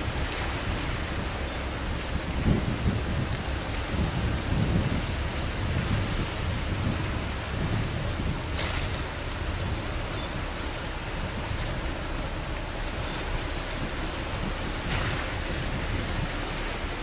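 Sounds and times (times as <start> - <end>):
steady outdoor hiss: 0.0 - 2.0
wind gusting over microphone: 0.0 - 17.0.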